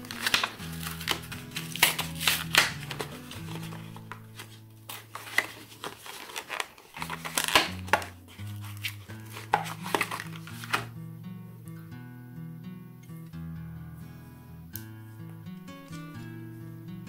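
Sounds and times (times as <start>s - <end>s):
plastic packaging crackling: 0.0s - 10.9s
background music: 0.0s - 17.0s.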